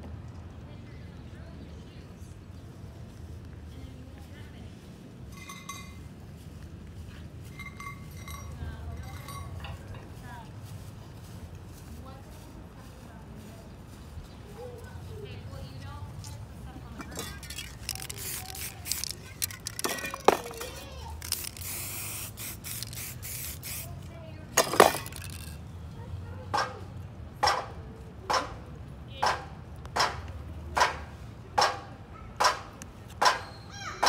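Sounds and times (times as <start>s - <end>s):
spray-paint can hissing: 17.2s - 25.6s.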